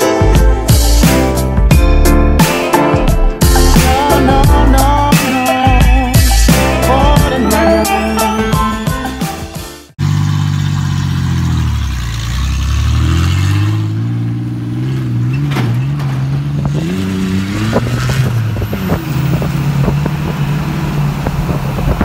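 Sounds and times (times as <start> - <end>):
truck engine revving: 9.2 - 22.0.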